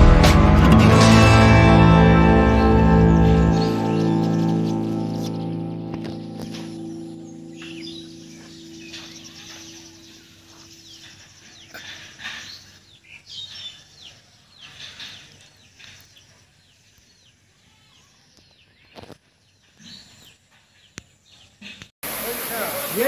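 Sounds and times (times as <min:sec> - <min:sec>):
music: 0:00.0 - 0:10.0
birds chirping: 0:00.7 - 0:21.9.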